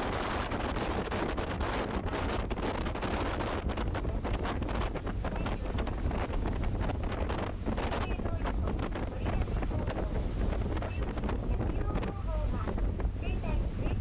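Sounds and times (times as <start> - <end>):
water rushing along hull: 0.0 - 14.0
wind buffeting microphone: 0.0 - 14.0
ferry engine rumble: 7.4 - 14.0.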